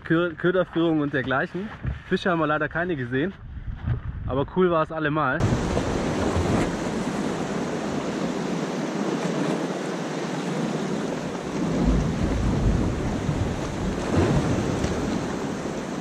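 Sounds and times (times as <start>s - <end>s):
wind rumbling on microphone: 0.0s - 16.0s
sea surf breaking on rocks: 5.4s - 16.0s.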